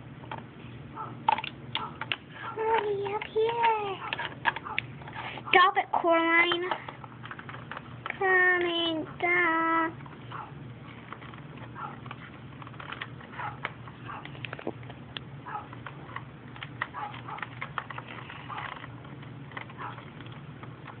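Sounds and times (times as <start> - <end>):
low steady hum: 0.0 - 21.0
plastic toys clicks and taps: 1.3 - 5.3, 6.4 - 8.9, 11.1 - 21.0.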